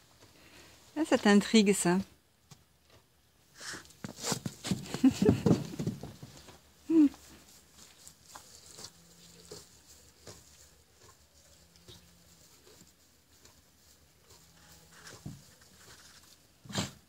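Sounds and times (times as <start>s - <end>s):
hay rustling as donkey feeds: 3.4s - 17.0s.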